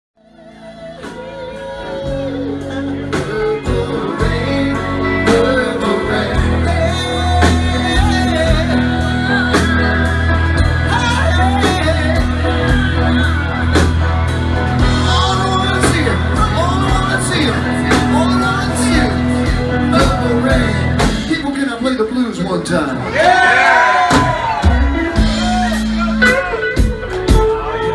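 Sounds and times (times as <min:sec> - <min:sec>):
man singing: 0:00.2 - 0:13.9, 0:14.6 - 0:22.3
drum kit: 0:00.2 - 0:21.8, 0:23.1 - 0:27.9
bass guitar: 0:00.2 - 0:27.9
electric guitar: 0:00.2 - 0:27.9.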